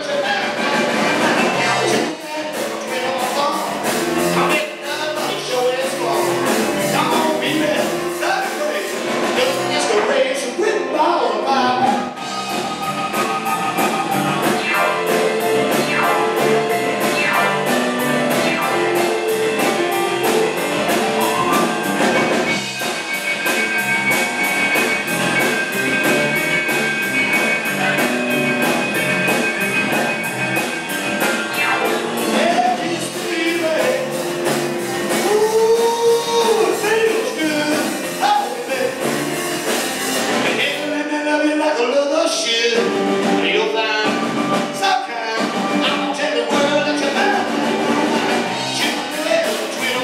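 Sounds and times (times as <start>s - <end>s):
drum kit beat: 0.0s - 10.1s, 11.6s - 41.1s, 42.6s - 50.0s
person singing: 0.0s - 12.2s, 13.1s - 22.4s, 31.6s - 39.3s, 40.4s - 50.0s
electric guitar: 0.0s - 41.2s, 41.8s - 50.0s
keyboard: 0.0s - 50.0s.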